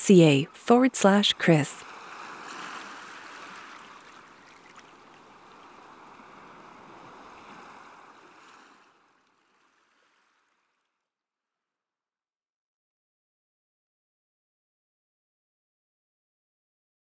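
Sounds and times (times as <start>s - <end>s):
running water rushing: 1.0s - 8.4s.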